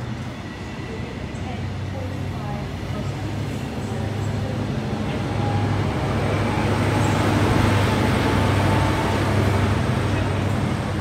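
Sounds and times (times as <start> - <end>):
diesel train engine drone: 0.0 - 11.0.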